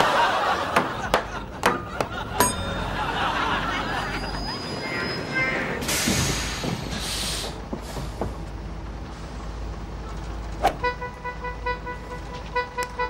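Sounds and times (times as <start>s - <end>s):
bus engine rumbling: 0.0s - 13.0s
hiss of air from bus doors: 5.8s - 9.6s.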